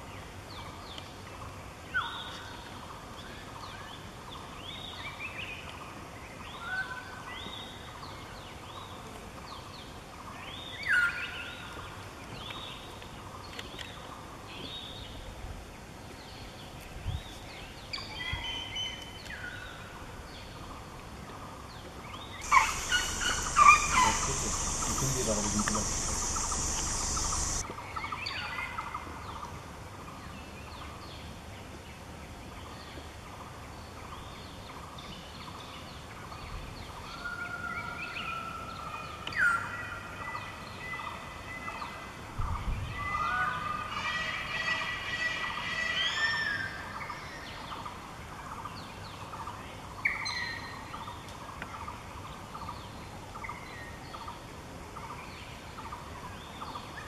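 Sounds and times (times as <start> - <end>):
birds chirping and whistling: 22.4 - 27.6
steady background drone: 22.4 - 27.6.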